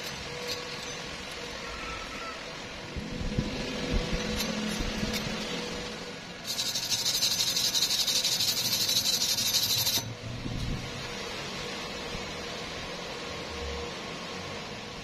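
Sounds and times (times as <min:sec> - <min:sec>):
wire brush scrubbing steel: 0:00.0 - 0:02.2, 0:03.9 - 0:10.8.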